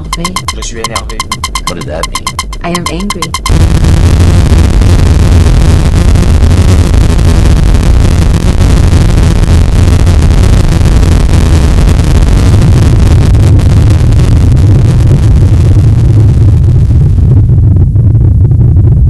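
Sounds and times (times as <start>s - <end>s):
harsh industrial noise music: 0.0s - 14.1s
heavy low rumble: 0.0s - 19.0s.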